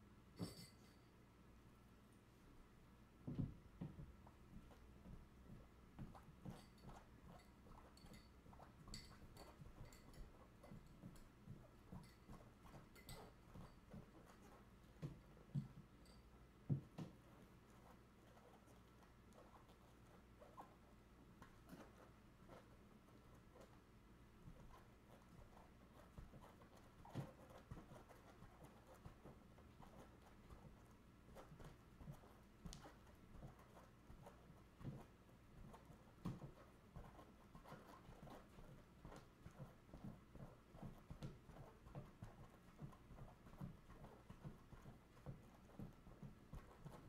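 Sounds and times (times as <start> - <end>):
ball thuds on tile floor: 3.2 - 4.1
light taps and clicks: 24.5 - 47.0.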